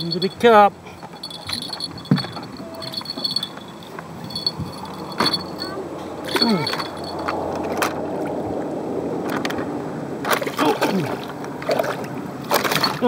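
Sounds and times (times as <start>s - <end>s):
boat knocking: 0.0s - 5.7s
water sloshing and splashing: 0.0s - 13.0s.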